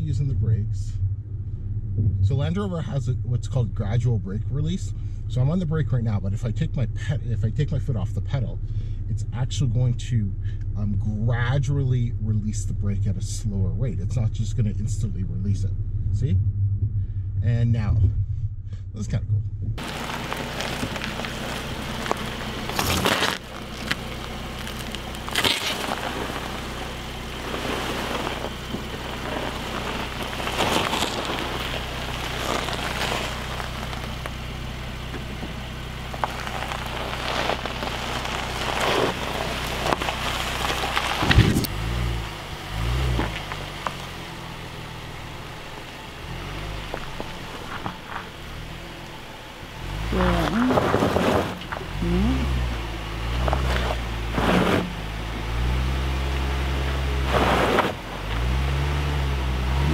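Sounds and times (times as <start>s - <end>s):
car engine running low: 0.0s - 59.9s
uneven low rumbling: 0.0s - 59.9s
tyres crunching over gravel: 19.8s - 59.9s.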